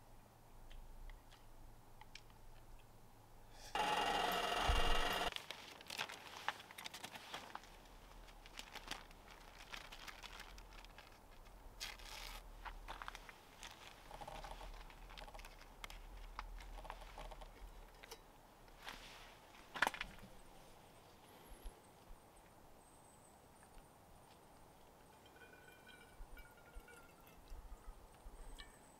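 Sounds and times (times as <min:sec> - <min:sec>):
paper packaging crinkling: 0:05.3 - 0:17.1.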